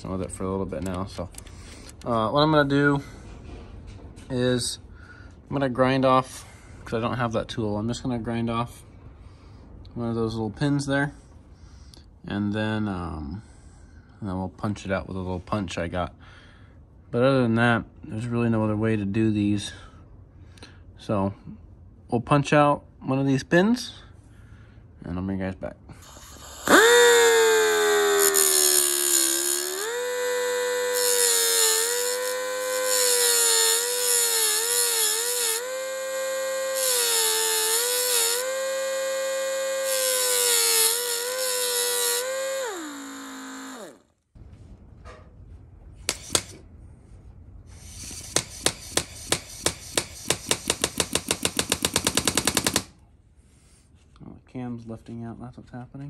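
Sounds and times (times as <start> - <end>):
electric grinder whining: 26.0 - 44.0
sharp clicks: 50.0 - 52.9.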